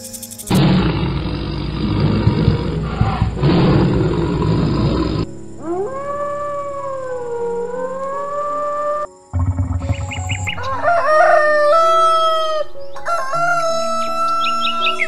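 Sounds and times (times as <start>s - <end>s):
animal roaring: 0.5s - 8.1s
animal howling: 0.6s - 15.0s.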